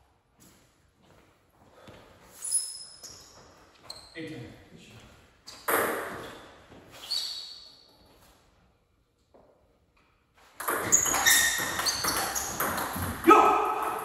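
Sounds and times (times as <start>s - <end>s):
table tennis ball pinging: 10.6s - 14.0s.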